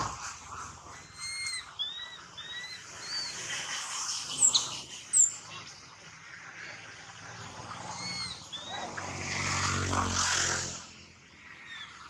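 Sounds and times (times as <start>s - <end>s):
baby monkey squeaking: 1.0s - 3.3s.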